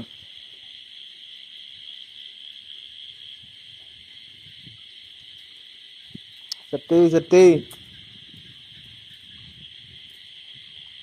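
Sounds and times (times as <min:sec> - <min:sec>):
night insects chirping: 0:00.0 - 0:11.0.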